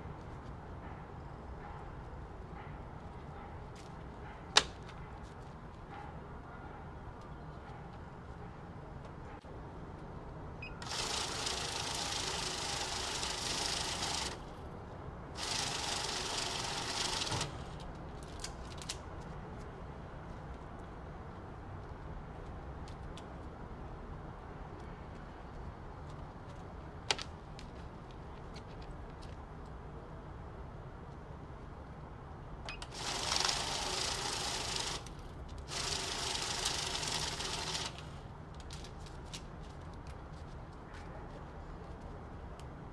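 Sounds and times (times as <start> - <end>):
banknote counter whirring: 10.7 - 14.5, 15.4 - 17.7, 32.7 - 38.1.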